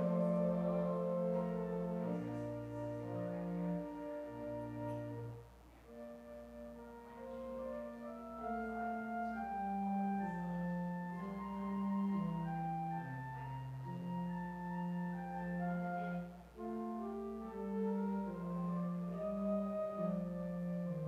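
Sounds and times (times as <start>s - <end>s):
church organ chords: 0.0s - 21.0s.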